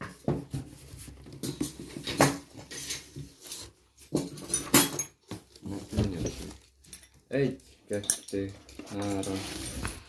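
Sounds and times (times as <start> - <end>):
metal spanners clinking: 4.2 - 5.3, 6.8 - 7.3, 7.9 - 9.5.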